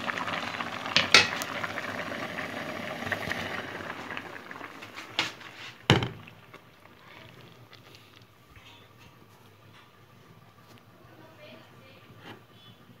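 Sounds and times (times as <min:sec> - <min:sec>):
water boiling in pot: 0:00.0 - 0:13.0.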